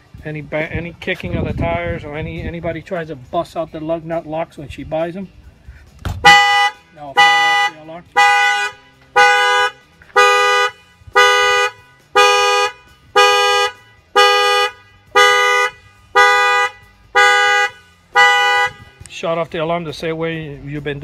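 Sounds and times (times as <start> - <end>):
car alarm horn honks: 6.2 - 19.0.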